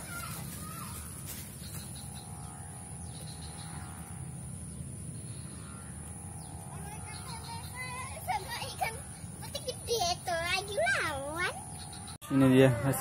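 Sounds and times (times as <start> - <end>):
birds chirping: 0.0 - 13.0
low background hum: 0.0 - 13.0
high-pitched insect buzz: 0.3 - 9.6.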